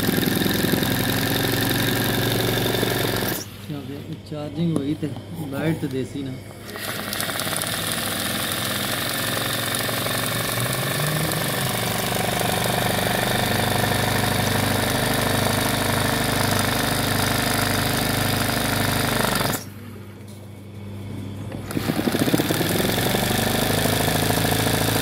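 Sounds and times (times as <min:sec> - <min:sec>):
sewing machine stitching: 0:00.0 - 0:03.5, 0:06.6 - 0:19.7, 0:21.6 - 0:25.0.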